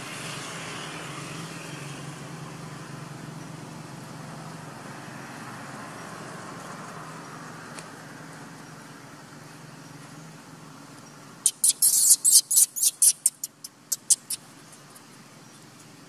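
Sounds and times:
passing traffic hum: 0.0s - 16.0s
baby monkey squealing: 11.4s - 14.4s.

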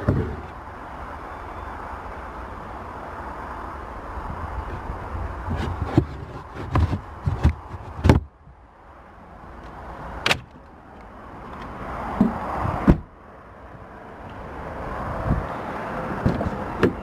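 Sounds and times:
clunks and knocks of trim panels: 12.2s - 13.1s.

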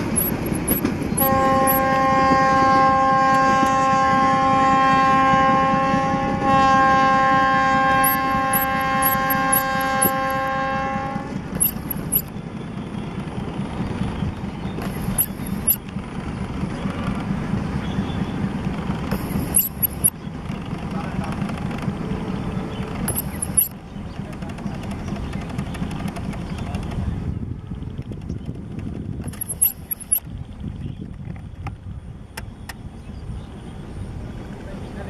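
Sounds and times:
train wheels clattering on track: 0.0s - 33.0s, 34.1s - 35.0s
train horn blasts: 1.1s - 12.2s.

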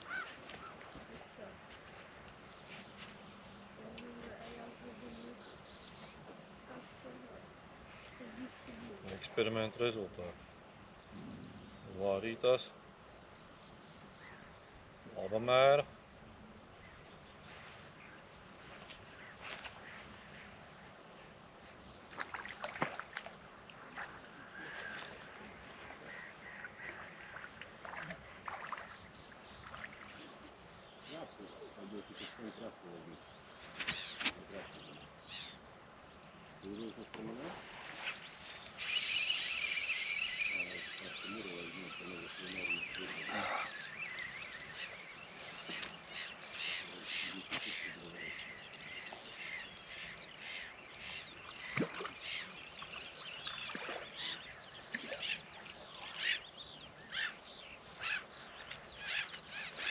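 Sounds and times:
small birds chirping: 0.0s - 15.9s, 16.7s - 59.9s
water lapping and splashing: 21.8s - 31.3s, 37.2s - 59.9s
short high chirps: 38.8s - 42.9s.

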